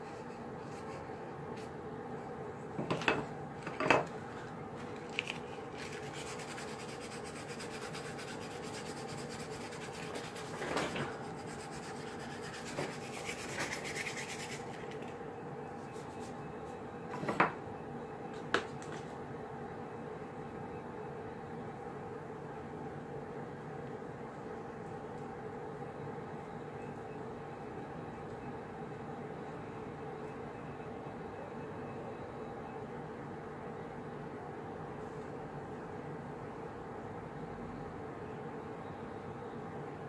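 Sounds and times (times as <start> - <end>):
steady low hum: 0.0 - 40.0
tools knocking on table: 2.8 - 4.1.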